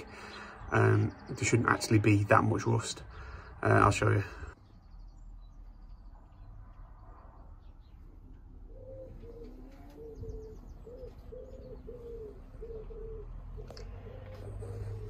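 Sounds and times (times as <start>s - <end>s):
small birds chirping: 0.0s - 15.0s
pigeon cooing: 8.4s - 15.0s.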